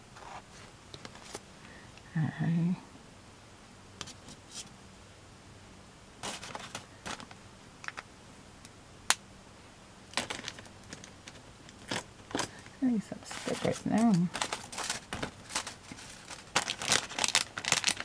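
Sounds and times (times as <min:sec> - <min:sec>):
paper rustling: 0:06.2 - 0:07.4, 0:10.2 - 0:18.0.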